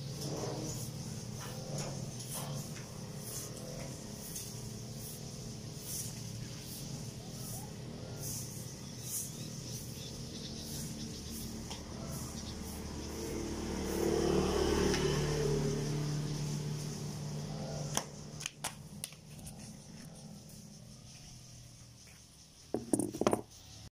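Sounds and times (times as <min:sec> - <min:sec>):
broom strokes on concrete: 0:00.0 - 0:14.8, 0:19.1 - 0:22.6
vehicle engine passing: 0:00.0 - 0:22.1.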